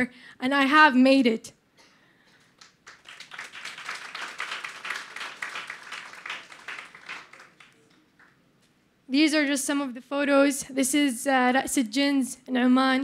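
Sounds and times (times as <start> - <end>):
audience applauding: 2.5 - 8.4.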